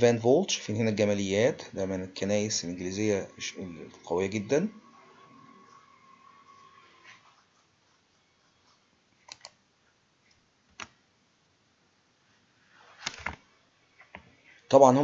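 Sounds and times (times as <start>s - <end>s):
computer mouse clicks: 9.2s - 9.6s, 10.3s - 11.0s.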